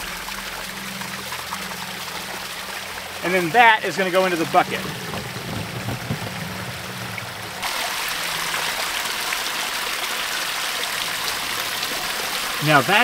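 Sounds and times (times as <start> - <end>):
creek water running and splashing: 0.0 - 13.0
small cascade rushing: 0.0 - 13.0
water pouring from pipe: 0.0 - 13.0.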